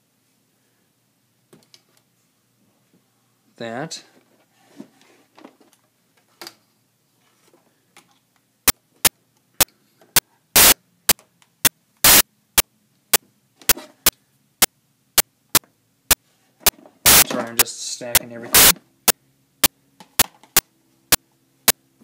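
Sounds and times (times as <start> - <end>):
sharp digital pops: 10.6 - 10.8, 12.0 - 12.2, 17.1 - 17.3, 18.1 - 18.8.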